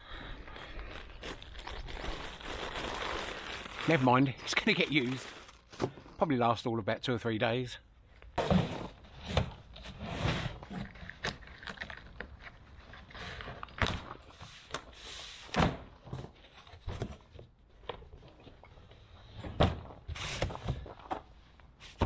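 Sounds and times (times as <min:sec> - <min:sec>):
cardboard scraping and rustling: 0:08.4 - 0:11.2.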